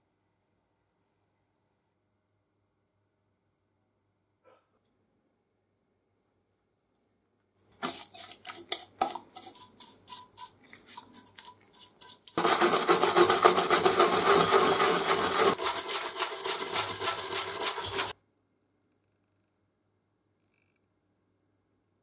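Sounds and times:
wire brush scrubbing metal: 7.8s - 18.1s.

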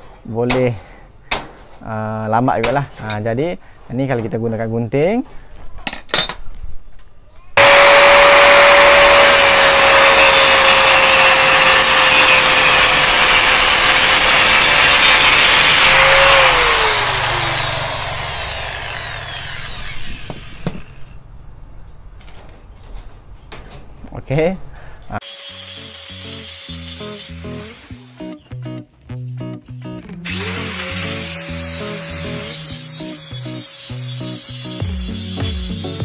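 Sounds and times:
angle grinder cutting wire mesh: 7.6s - 21.2s, 25.2s - 28.4s, 30.3s - 36.0s
grinder disc spinning down: 7.6s - 21.2s, 30.2s - 36.0s
grinder motor whine: 7.6s - 21.2s, 25.2s - 28.2s, 30.2s - 36.0s.

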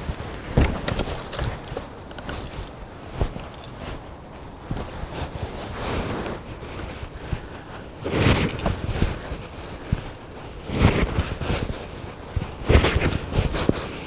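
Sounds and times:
wire rustling and scraping: 0.0s - 14.0s.

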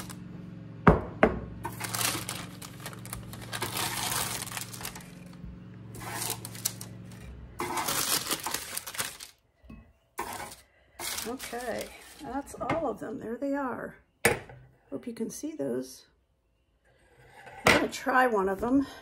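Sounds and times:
parchment crinkling: 1.7s - 9.4s, 10.2s - 12.6s
metal spatula scraping sheet pan: 6.0s - 8.7s, 10.2s - 12.6s.

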